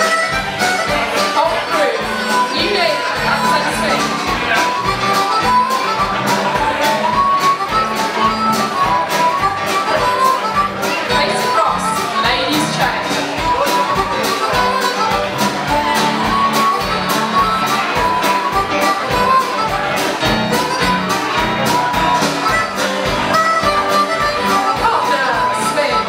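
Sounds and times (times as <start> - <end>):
folk dance band playing: 0.0 - 26.0.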